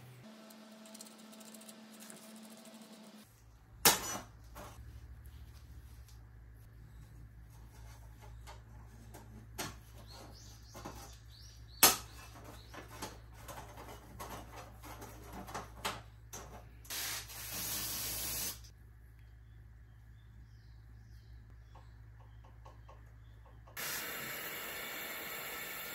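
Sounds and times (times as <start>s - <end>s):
aerosol spray can hissing: 16.9s - 18.6s, 23.8s - 25.9s.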